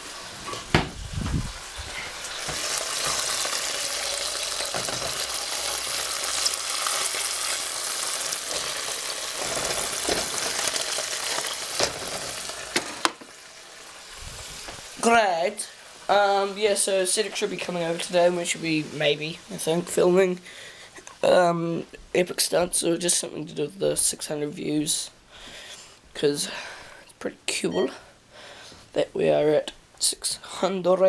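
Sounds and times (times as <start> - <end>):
bacon sizzling in a frying pan: 0.0 - 20.2.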